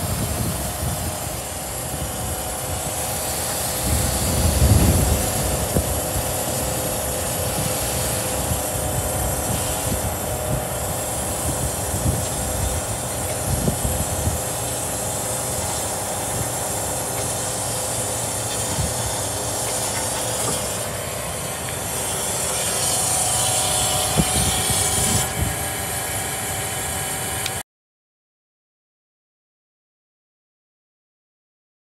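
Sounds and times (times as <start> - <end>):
wind buffeting microphone: 0.0 - 20.6, 22.6 - 26.0
truck engine running: 0.0 - 27.6.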